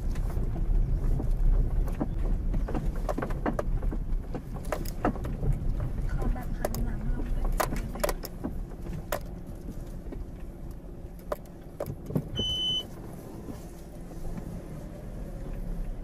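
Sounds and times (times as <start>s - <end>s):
car knocks and rattles: 0.0s - 14.7s
car engine and tyres humming: 0.0s - 16.0s
short electronic beep: 12.4s - 12.9s.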